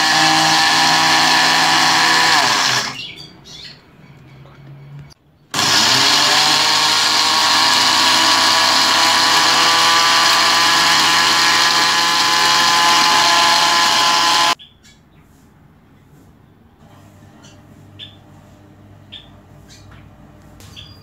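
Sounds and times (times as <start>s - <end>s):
blender grinding: 0.0s - 3.1s, 5.5s - 14.6s.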